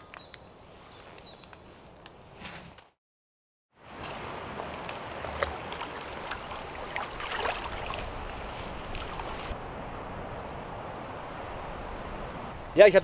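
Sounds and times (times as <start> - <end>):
moving river water: 3.8 - 12.9.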